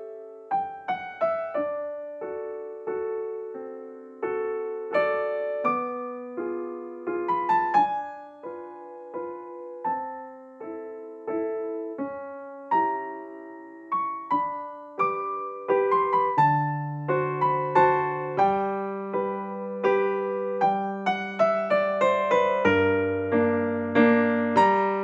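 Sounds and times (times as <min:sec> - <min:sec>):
gentle piano music: 0:00.0 - 0:25.0.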